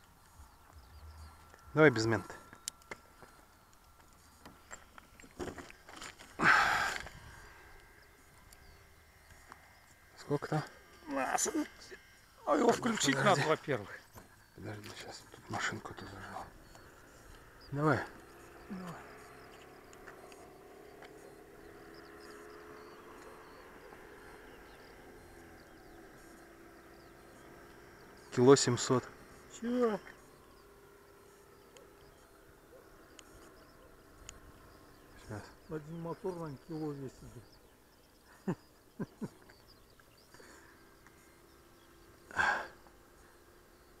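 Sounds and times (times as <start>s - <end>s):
low steady hum: 0.0s - 44.0s
forceful breath out: 6.4s - 7.5s.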